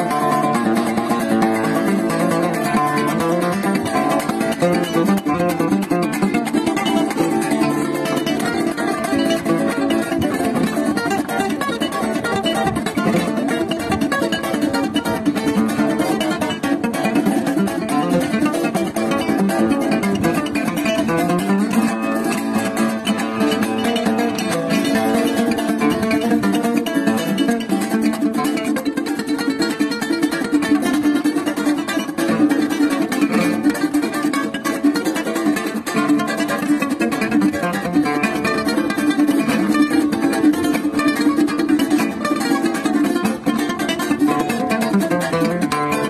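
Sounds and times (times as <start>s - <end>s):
plucked string melody: 0.0s - 46.0s
second plucked string instrument: 0.0s - 46.0s.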